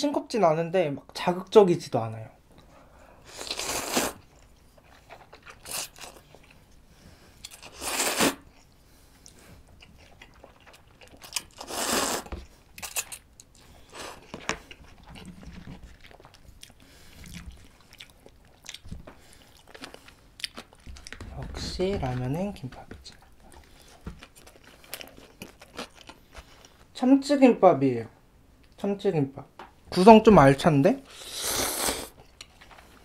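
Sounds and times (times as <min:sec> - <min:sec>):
person chewing: 0:03.2 - 0:26.9, 0:31.1 - 0:33.0
person slurping noodles: 0:03.3 - 0:04.2, 0:07.6 - 0:08.4, 0:11.6 - 0:12.3, 0:31.1 - 0:32.2.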